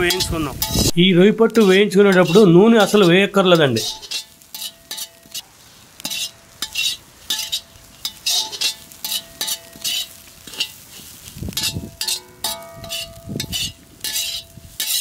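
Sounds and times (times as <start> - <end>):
metal spatula scraping pan: 0.0 - 15.0
pan ringing faintly: 11.6 - 14.6.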